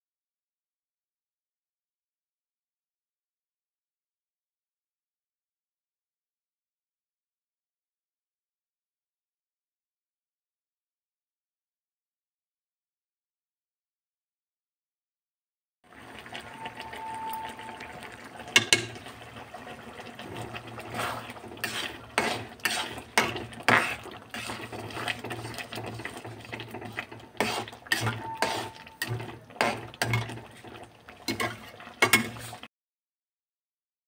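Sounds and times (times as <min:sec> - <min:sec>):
metal spatula scraping metal pan: 0:18.5 - 0:19.1, 0:20.3 - 0:32.7.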